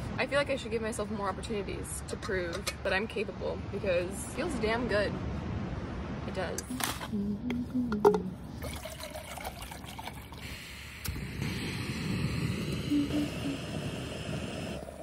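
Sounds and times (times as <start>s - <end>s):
water pouring into a cup: 8.6s - 10.5s.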